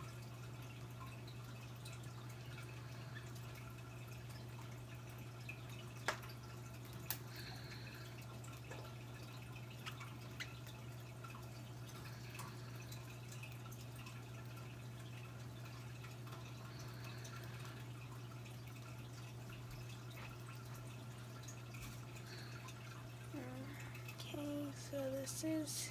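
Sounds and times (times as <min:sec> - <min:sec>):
steady low hum: 0:00.0 - 0:25.9
faint ticks: 0:05.6 - 0:07.5.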